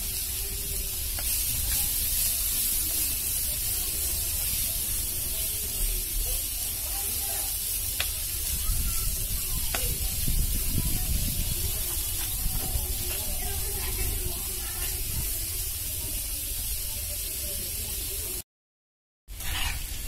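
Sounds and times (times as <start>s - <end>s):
spatula scraping a pan: 0.0s - 10.1s, 19.3s - 20.0s
onions sizzling in hot oil: 0.0s - 18.4s, 19.3s - 20.0s.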